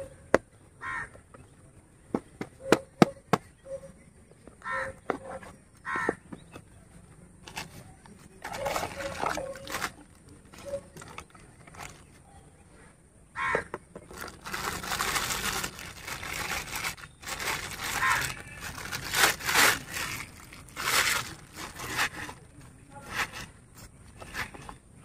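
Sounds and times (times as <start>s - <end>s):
plastic wrapping crinkling: 8.4s - 12.2s, 14.1s - 23.5s.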